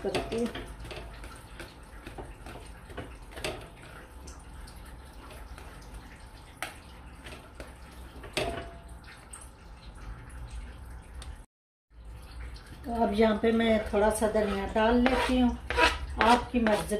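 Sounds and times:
whisk squelching mashed potato: 0.0 - 4.6, 13.7 - 16.9.

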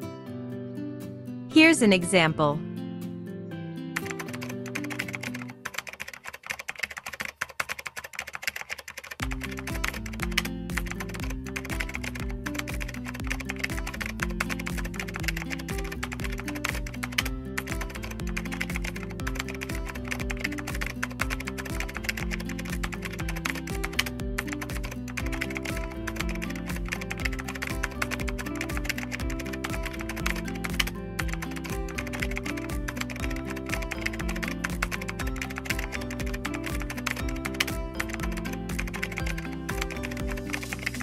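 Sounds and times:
light background music: 0.0 - 41.0
rapid keyboard typing: 4.0 - 41.0.

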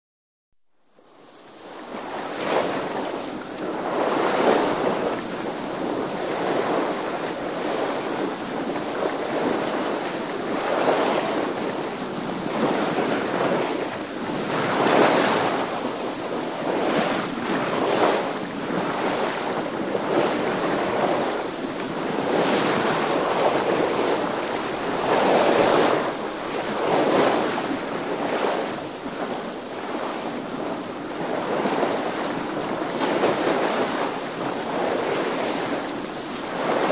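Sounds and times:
wind: 0.7 - 36.9
water rushing along a hull: 0.8 - 36.9.

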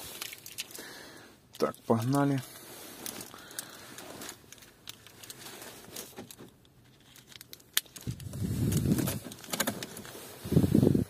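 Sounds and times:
loud rustling rumble: 8.0 - 11.0.

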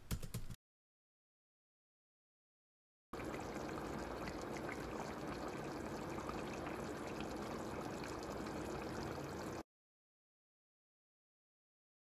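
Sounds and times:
curry bubbling in pan: 3.2 - 9.6.

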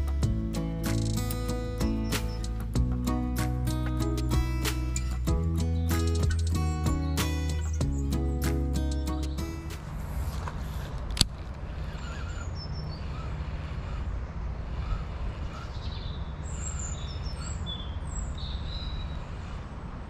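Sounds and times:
songbirds chirping: 0.0 - 20.0
sharp click: 0.9 - 1.4.

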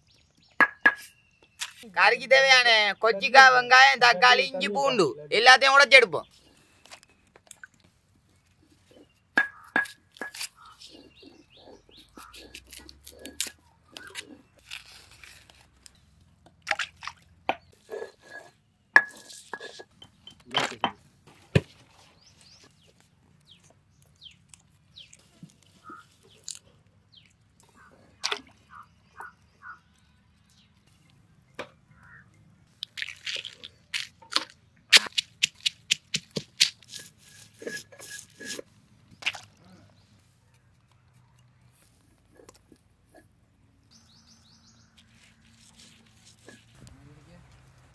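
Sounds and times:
knife cutting vegetables: 34.3 - 38.6.

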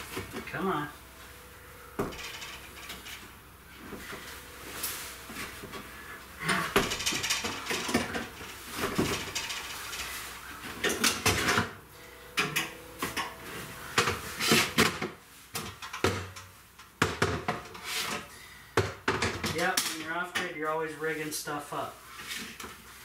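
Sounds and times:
stepladder knocking and clattering: 2.0 - 4.5, 5.2 - 11.8, 18.8 - 20.6.

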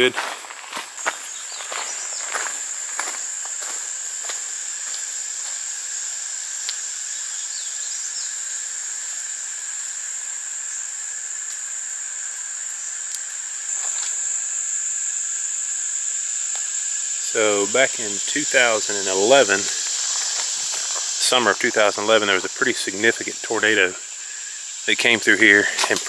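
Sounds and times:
footsteps on trail: 0.0 - 5.8, 17.4 - 21.9, 25.6 - 26.0
insects buzzing: 0.0 - 26.0.

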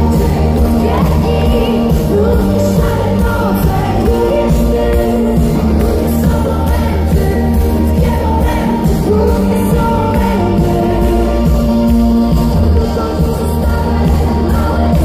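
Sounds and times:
live pop-rock band playing: 0.0 - 15.0
woman singing: 0.0 - 15.0.

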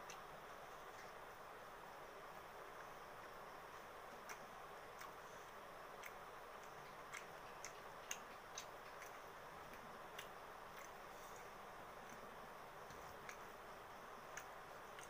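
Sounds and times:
steady low hiss: 0.0 - 15.0
eating clicks: 3.7 - 15.0.

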